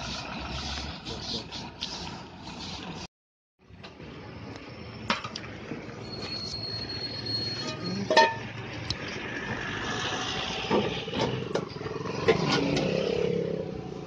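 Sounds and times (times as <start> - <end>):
road traffic: 0.0 - 14.0
vehicle engine passing: 7.2 - 14.0
steel plates and spoon clinking: 7.4 - 8.5.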